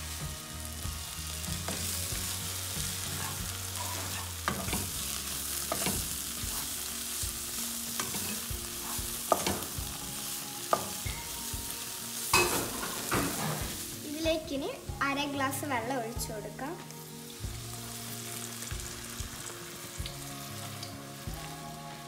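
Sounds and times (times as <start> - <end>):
onions and tomato sizzling: 0.0 - 22.0
spatula stirring and scraping: 1.7 - 6.8, 8.0 - 9.6.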